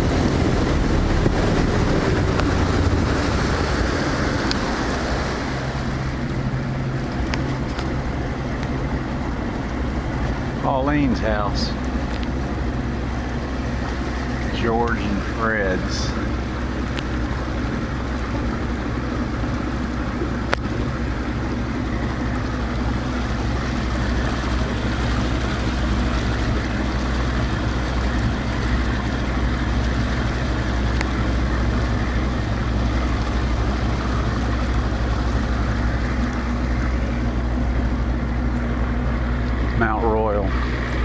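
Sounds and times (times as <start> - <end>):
motorboat engine running: 0.0 - 41.0
wind and water rushing: 0.0 - 41.0.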